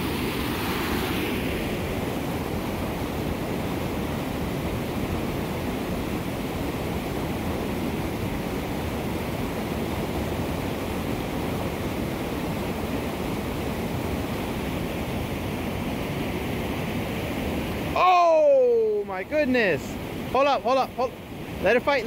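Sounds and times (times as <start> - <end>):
water rushing over a spillway: 0.0 - 22.0.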